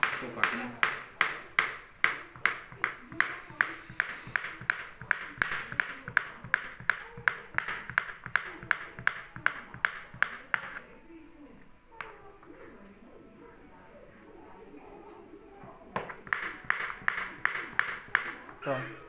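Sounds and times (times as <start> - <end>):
knife chopping on plastic board: 0.0 - 10.8, 15.9 - 18.6.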